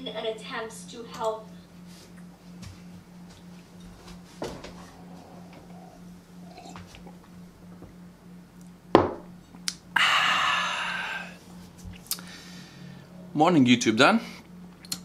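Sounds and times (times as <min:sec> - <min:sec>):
man gulping and swallowing: 0:04.7 - 0:08.0
man sighing aah: 0:09.9 - 0:11.4.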